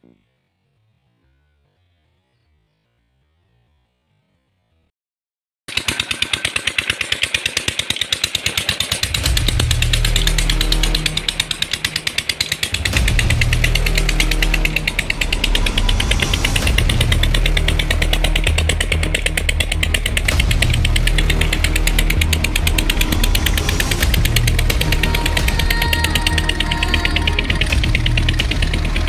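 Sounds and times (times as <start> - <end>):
diesel engine chugging: 5.7 - 29.0
deep rumble: 8.9 - 29.0.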